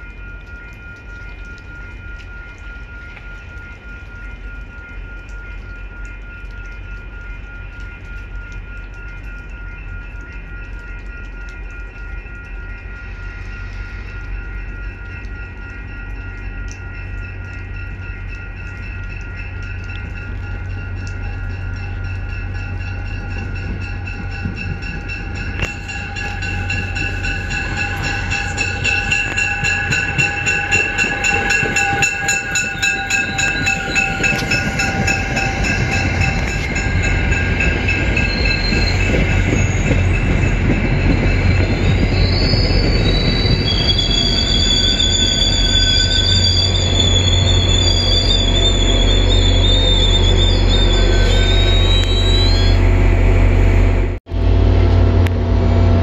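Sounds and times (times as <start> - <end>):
train wheel squeal: 9.4 - 54.1
diesel train rumbling past: 12.7 - 56.0.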